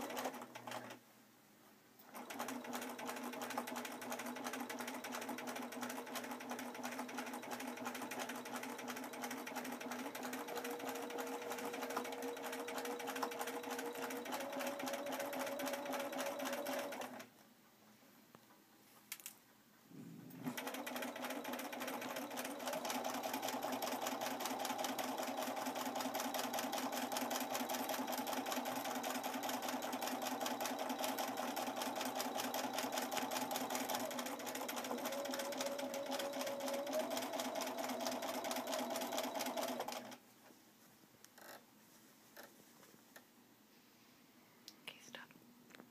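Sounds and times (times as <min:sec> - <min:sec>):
sewing machine stitching: 0:00.0 - 0:01.0, 0:02.0 - 0:17.3, 0:20.4 - 0:40.2.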